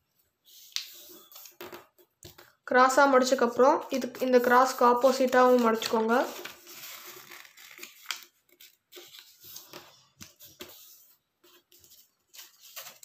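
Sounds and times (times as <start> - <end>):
paper rustling and crinkling: 4.0 - 13.0.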